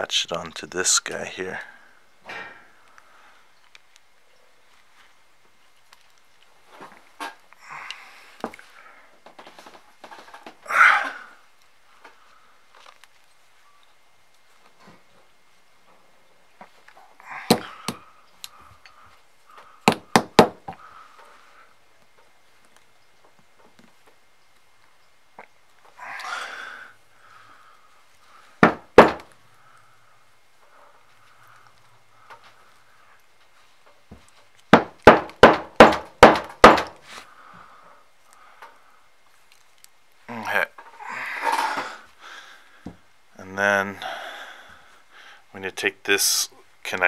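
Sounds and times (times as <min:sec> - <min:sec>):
loud sharp knocks: 0:19.9 - 0:20.8, 0:28.6 - 0:29.3, 0:34.7 - 0:37.0.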